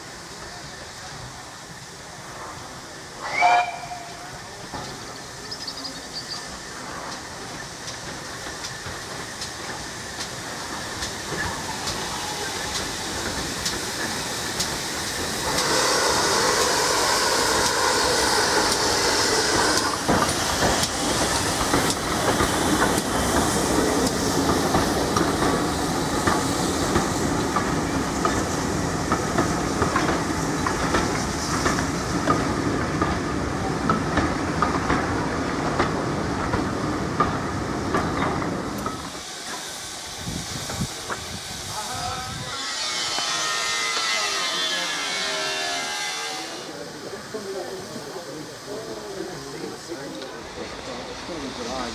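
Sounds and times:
steam hissing: 0.0 - 51.9
train wheels knocking over rail joints: 6.9 - 39.7.

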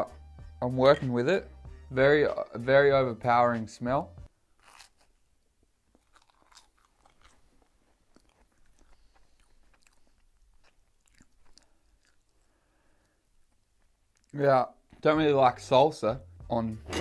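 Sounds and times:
chewing toast: 4.6 - 14.4.

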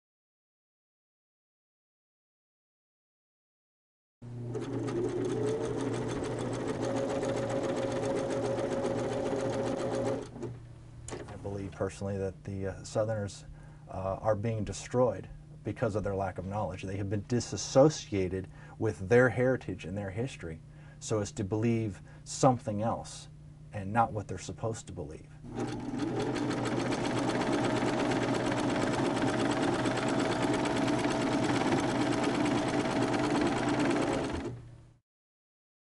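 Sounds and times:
sewing machine motor hum: 4.2 - 11.4, 25.5 - 34.8
sewing machine needle clatter: 25.5 - 34.6.

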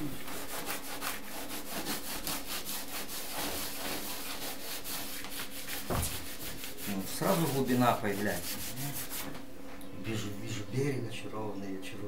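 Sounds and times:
cloth rubbing on canvas: 0.0 - 9.4.

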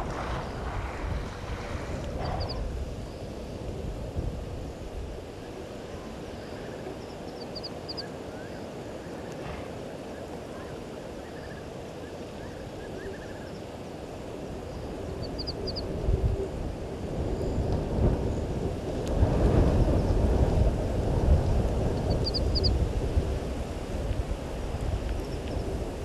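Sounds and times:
birds chirping: 0.0 - 3.6, 5.4 - 15.9
low outdoor rumble: 0.0 - 11.6.

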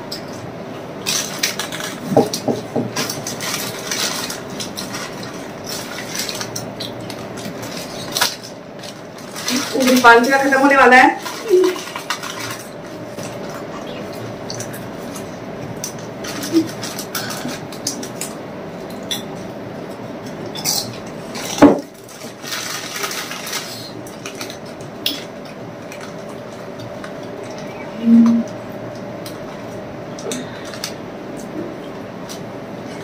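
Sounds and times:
faint steady hum: 0.0 - 33.0
chips being crunched: 1.0 - 10.4, 20.6 - 27.7
chip packets crinkling: 1.0 - 19.3, 20.6 - 31.5.

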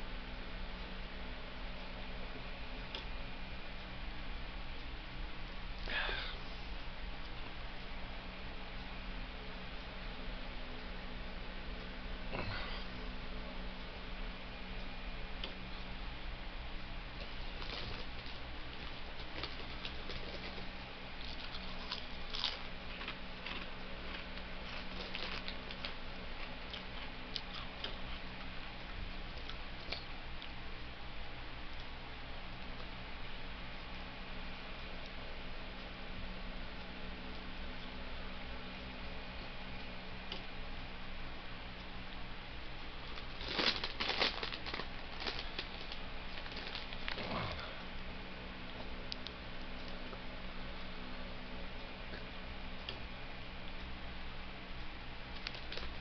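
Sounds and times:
steady low hum: 0.0 - 56.0
chip bag crackling: 17.5 - 26.0, 43.0 - 47.4, 55.4 - 56.0.

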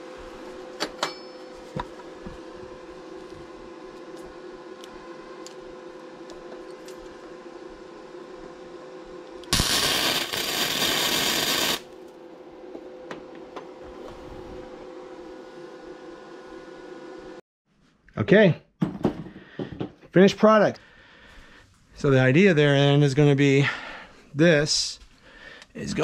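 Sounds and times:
welding arc hissing: 9.4 - 12.0.

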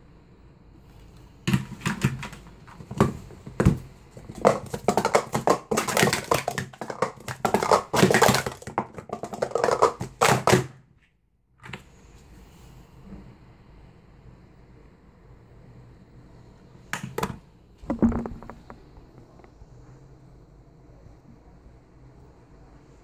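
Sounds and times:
plastic cups clattering: 1.5 - 10.8, 17.0 - 19.5.

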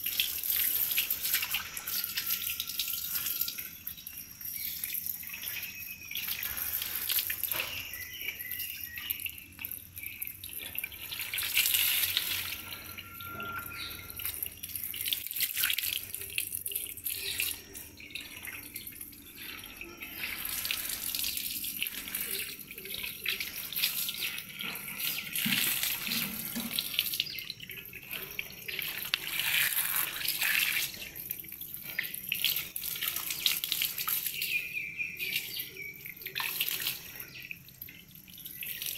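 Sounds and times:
hose water spraying on metal: 0.0 - 4.0, 4.6 - 9.7, 10.6 - 16.2, 19.4 - 34.5.

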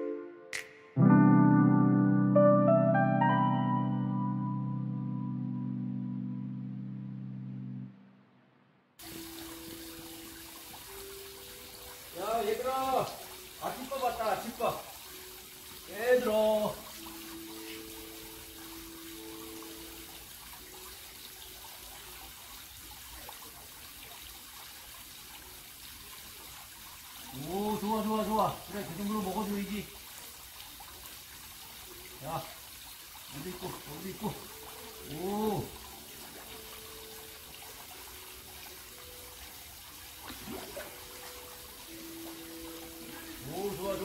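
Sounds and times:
water trickling into pond: 9.0 - 44.0.

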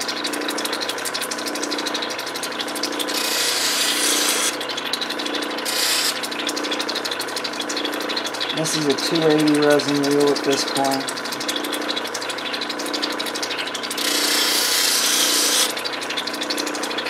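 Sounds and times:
grinding machine motor hum: 2.8 - 4.6, 5.2 - 6.8, 13.9 - 15.8
hissing stone grinding: 3.1 - 4.6, 5.6 - 6.2, 14.0 - 15.7.

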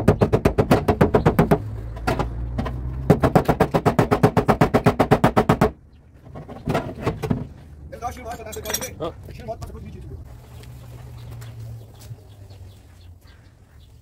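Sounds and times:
hammer tapping on car door: 0.0 - 2.3, 3.1 - 5.8.

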